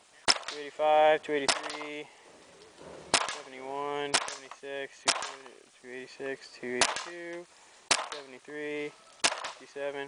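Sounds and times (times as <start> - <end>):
paintball marker firing pops: 0.3 - 0.7, 1.4 - 2.0, 2.7 - 5.6, 6.8 - 8.3, 9.2 - 9.7.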